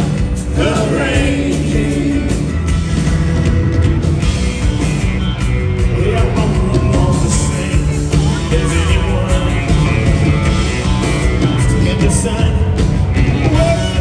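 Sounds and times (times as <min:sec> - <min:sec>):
drums: 0:00.0 - 0:14.0
electric guitar: 0:00.0 - 0:14.0
keyboards: 0:00.0 - 0:14.0
person singing: 0:05.9 - 0:10.0.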